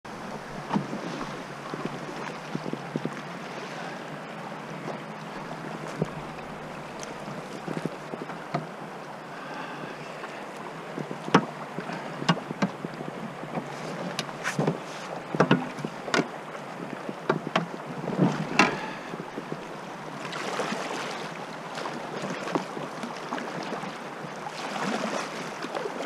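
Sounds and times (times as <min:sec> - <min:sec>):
river rushing: 0:00.1 - 0:26.0
paddle knocking on canoe hull: 0:00.3 - 0:03.2, 0:05.4 - 0:08.8, 0:11.0 - 0:16.3, 0:17.0 - 0:19.8.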